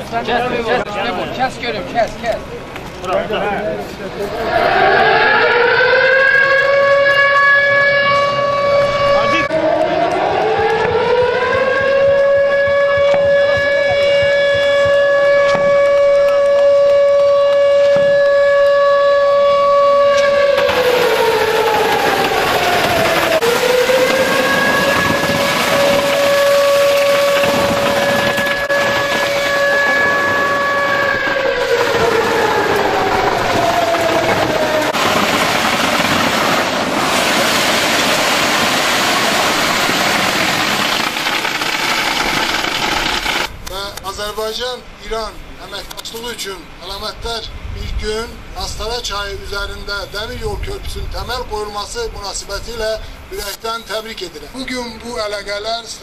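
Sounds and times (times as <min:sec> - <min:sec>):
concrete mixer truck running: 0:00.0 - 0:43.7
long horn blast: 0:04.4 - 0:21.9, 0:22.9 - 0:35.0
loud rushing noise: 0:20.3 - 0:43.7.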